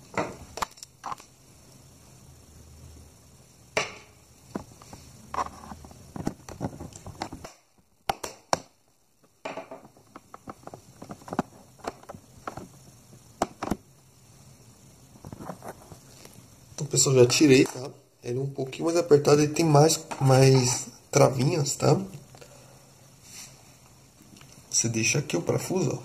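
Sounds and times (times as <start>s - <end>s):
sharp plastic snaps: 7.2s - 8.8s
plastic clicks and knocks: 9.4s - 12.7s, 13.4s - 13.8s.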